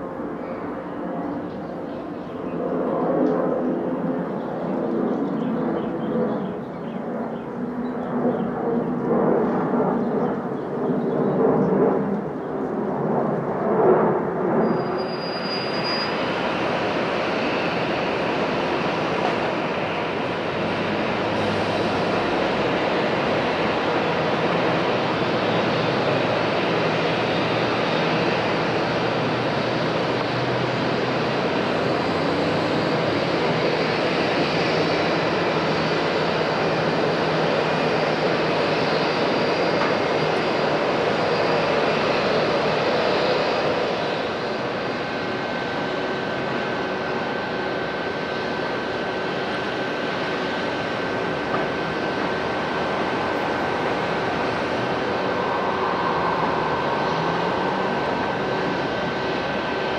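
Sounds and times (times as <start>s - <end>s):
jet engines roaring: 0.0s - 59.9s
thin steady whine: 14.8s - 59.9s.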